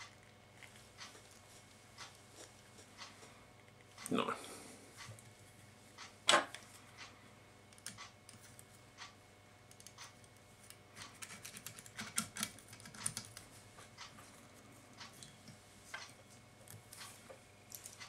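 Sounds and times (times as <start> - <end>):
small clicks and ticks from hands: 6.0 - 14.4, 15.0 - 18.0.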